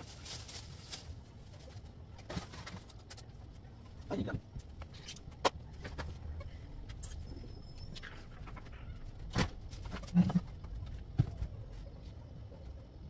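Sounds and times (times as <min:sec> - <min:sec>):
rustling while tidying: 0:00.0 - 0:04.9
low steady hum: 0:00.0 - 0:13.0.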